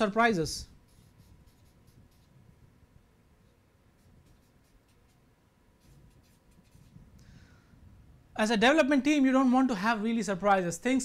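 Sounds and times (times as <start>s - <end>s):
marker scratching on paper: 0.7s - 2.4s, 3.9s - 7.1s.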